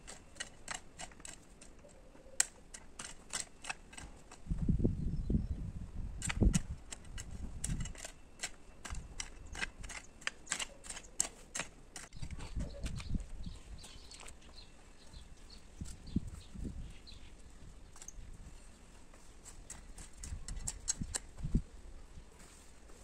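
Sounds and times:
hoe scraping stony soil: 0.0 - 4.8, 6.2 - 21.6.

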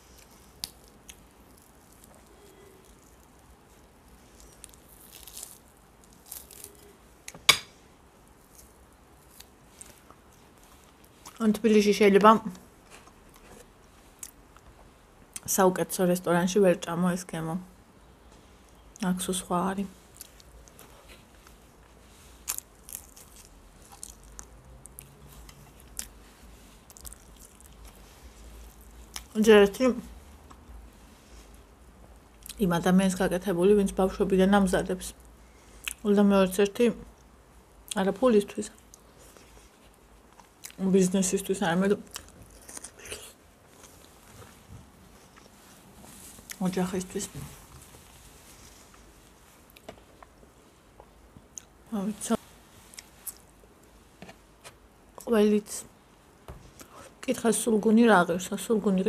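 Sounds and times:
person chewing food: 22.4 - 29.3, 42.1 - 45.7.

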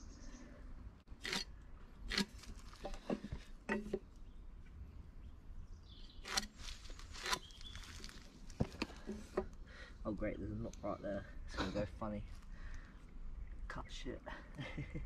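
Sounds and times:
knocks and scrapes on wood: 2.1 - 4.1.

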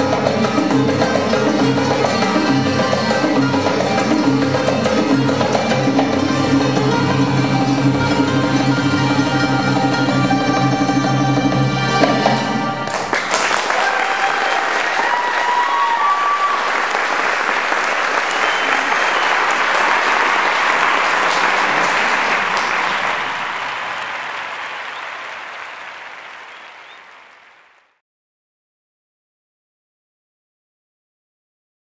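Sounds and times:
audience applauding: 12.9 - 28.0.

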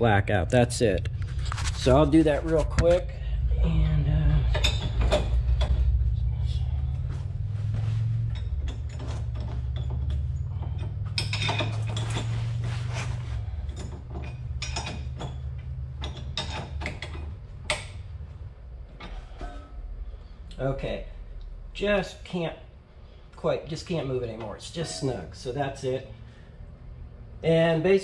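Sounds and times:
steady low hum: 0.0 - 28.0
steel wrenches clicking: 8.3 - 18.2.

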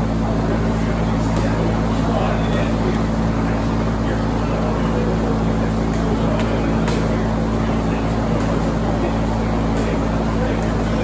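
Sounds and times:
low mechanical hum: 0.0 - 11.0
voices murmuring: 0.0 - 11.0
strikes slapping pads: 5.9 - 7.2.

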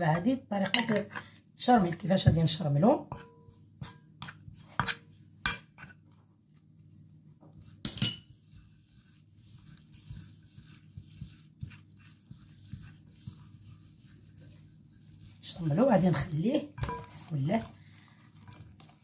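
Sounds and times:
low steady hum: 0.0 - 19.0
spoon clatter: 7.9 - 8.3.

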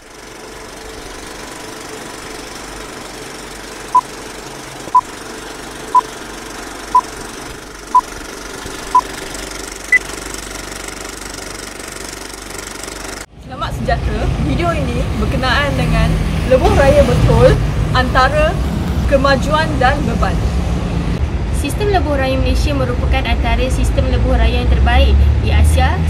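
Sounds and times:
film projector whirr with crackle: 0.0 - 13.3.

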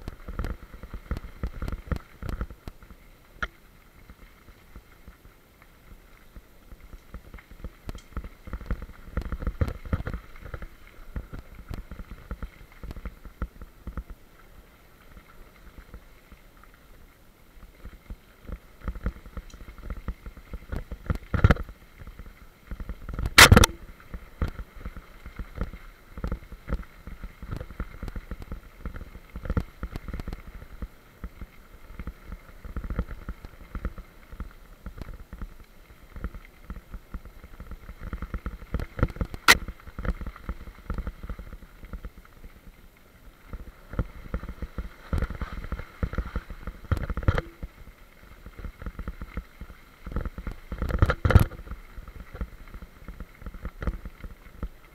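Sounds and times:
bicycle rattling on gravel: 0.0 - 3.0, 3.9 - 16.2, 16.8 - 54.9
sharp crack: 23.2 - 23.9.

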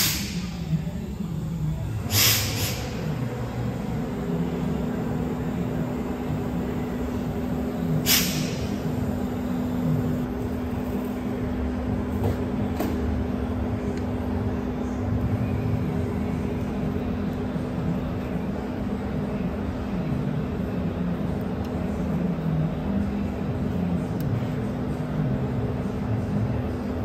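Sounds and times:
machine hum: 0.0 - 20.1.

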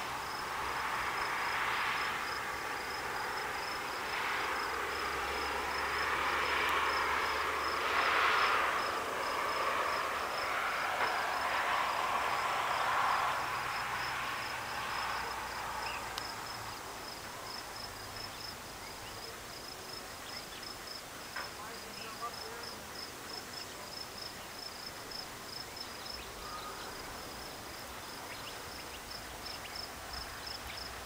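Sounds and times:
rushing noise: 0.0 - 17.5
insect chirping: 0.1 - 31.0.

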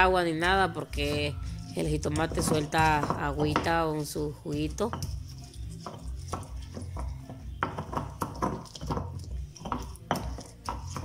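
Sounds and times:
stone pestle grinding in bowl: 0.0 - 11.0.

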